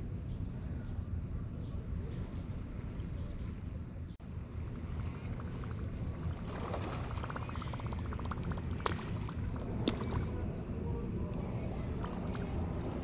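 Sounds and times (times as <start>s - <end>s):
steady low rumble: 0.0s - 13.0s
birds chirping: 0.2s - 13.0s
fast run of ticks: 6.7s - 10.3s.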